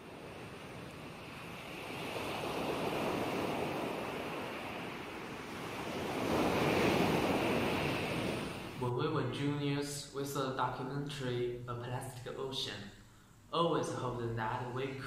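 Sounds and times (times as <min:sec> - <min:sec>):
ocean surf washing in: 0:00.0 - 0:08.9.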